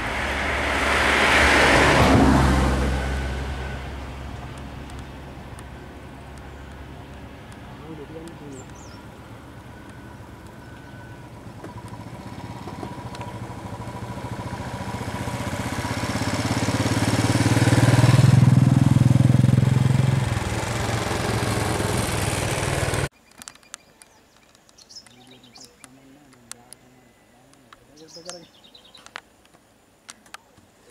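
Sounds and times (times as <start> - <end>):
motorcycle engine passing by: 0.0 - 23.1.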